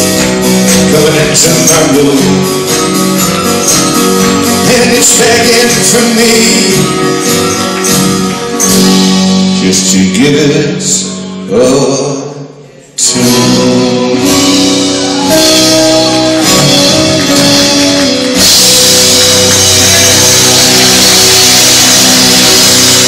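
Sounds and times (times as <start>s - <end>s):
singer's voice: 0.0s - 3.0s, 4.3s - 7.6s, 9.4s - 23.0s
band playing loud final chord: 14.0s - 23.0s.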